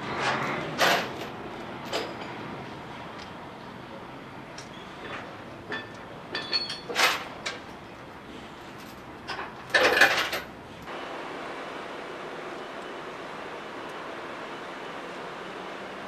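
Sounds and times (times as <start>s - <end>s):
metallic clanks and knocks: 5.0s - 7.6s
ringing metal clink: 5.8s - 7.0s.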